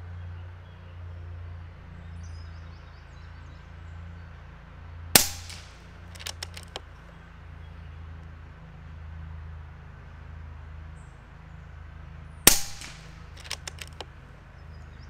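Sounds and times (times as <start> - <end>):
air rifle shot: 5.2 - 6.8, 12.5 - 14.0
light clicks: 5.2 - 7.0, 12.5 - 14.2.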